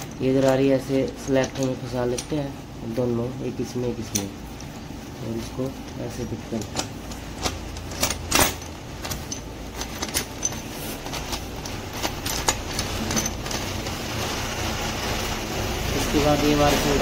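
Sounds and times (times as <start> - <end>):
low background hum: 0.0 - 17.0
metal gears clinking: 5.8 - 14.1.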